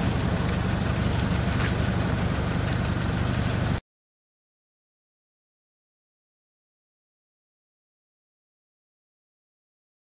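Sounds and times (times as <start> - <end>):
forklift engine idling: 0.0 - 3.8.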